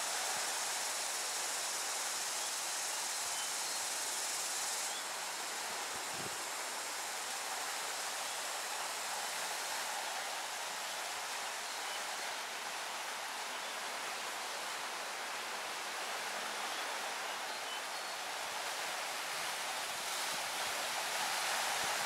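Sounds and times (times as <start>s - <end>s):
high thin insect-like drone: 0.0s - 15.2s.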